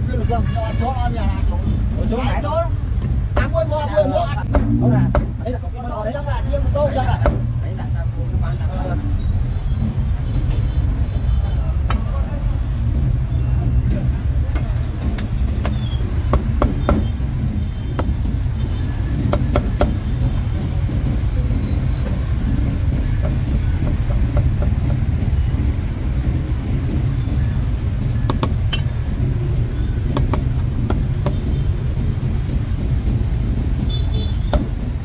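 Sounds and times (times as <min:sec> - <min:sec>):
road traffic rumble: 0:00.0 - 0:35.0
cleaver chopping on wooden block: 0:04.4 - 0:05.4, 0:16.3 - 0:17.1, 0:30.1 - 0:31.4.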